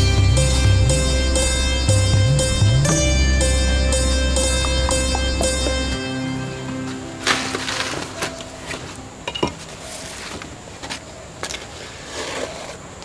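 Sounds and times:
leaf rustling: 6.7 - 13.0.

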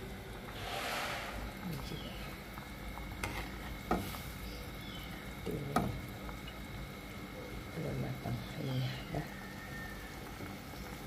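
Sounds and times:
broth simmering: 0.0 - 11.0.

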